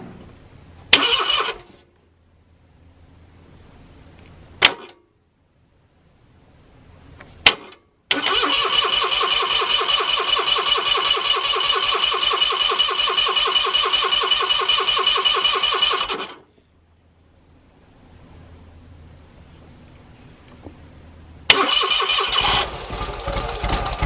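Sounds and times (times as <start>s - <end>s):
engine cranking with electric starter: 0.9s - 1.8s, 8.1s - 16.4s, 21.5s - 24.0s.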